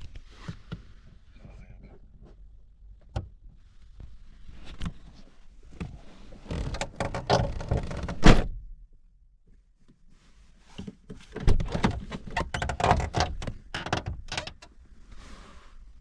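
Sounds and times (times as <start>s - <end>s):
knocks and clunks: 10.8s - 14.7s.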